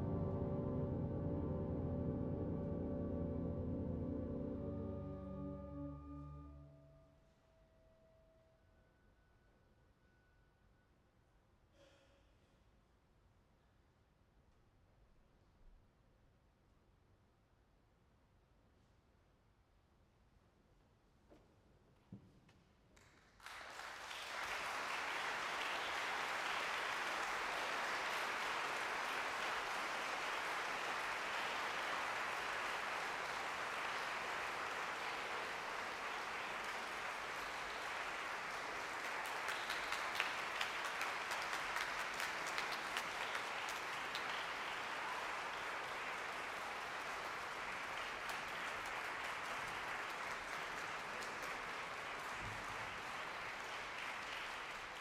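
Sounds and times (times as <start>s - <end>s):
audience applause: 23.4s - 55.0s.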